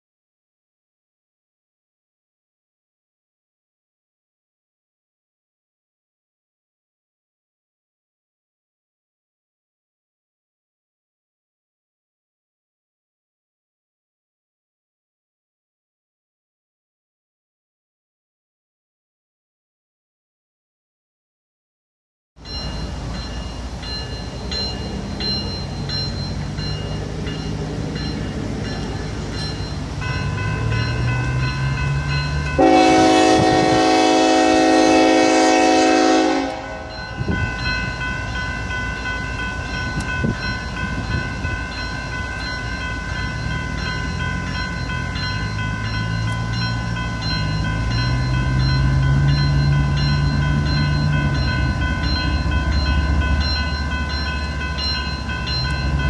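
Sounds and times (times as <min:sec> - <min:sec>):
crossing bells ringing: 0:22.4 - 0:56.0
locomotive engine rumble: 0:22.4 - 0:56.0
locomotive horn blast: 0:30.4 - 0:37.4.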